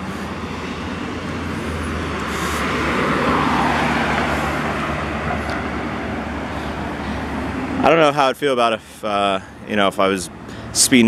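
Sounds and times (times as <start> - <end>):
low engine hum: 0.0 - 8.0
vehicle passing: 0.0 - 11.0.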